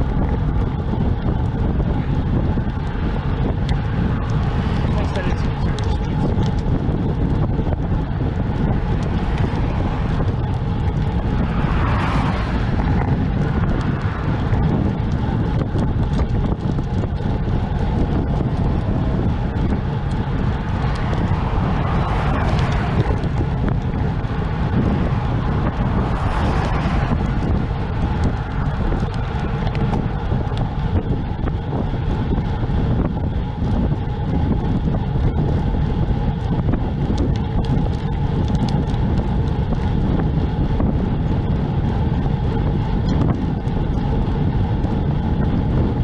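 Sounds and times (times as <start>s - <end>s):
vehicles passing: 0.0s - 46.0s
wind buffeting microphone: 0.0s - 46.0s.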